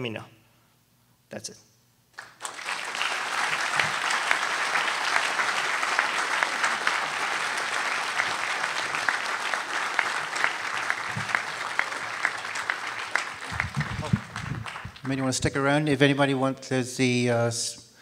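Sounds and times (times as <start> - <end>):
audience applauding: 2.2 - 15.5.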